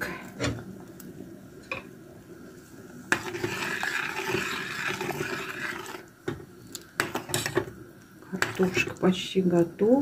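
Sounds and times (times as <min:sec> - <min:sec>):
metal ladle stirring soup in pot: 0:03.1 - 0:09.0.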